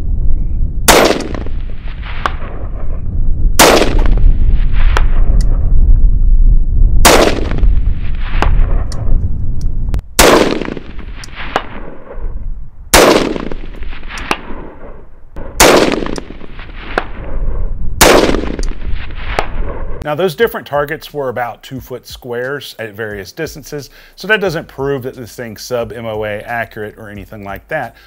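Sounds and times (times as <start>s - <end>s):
rifle shots with echo: 0.9s - 3.0s, 3.6s - 5.4s, 7.0s - 9.0s, 10.2s - 12.3s, 12.9s - 19.8s.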